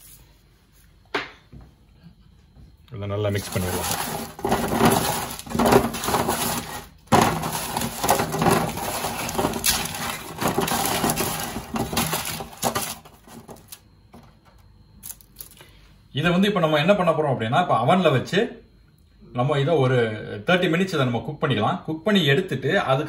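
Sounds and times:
baking paper crinkling: 0:03.3 - 0:13.8.

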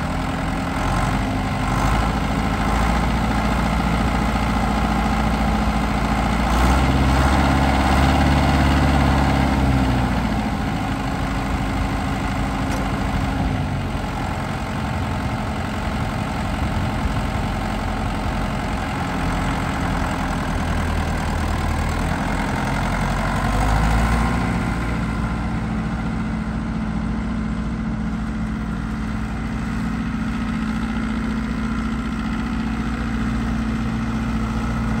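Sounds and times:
tractor diesel engine running: 0:00.0 - 0:35.0.

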